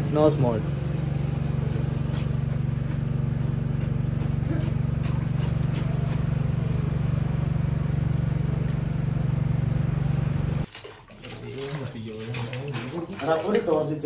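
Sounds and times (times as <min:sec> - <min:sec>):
engine-driven water pump running: 0:00.0 - 0:14.0.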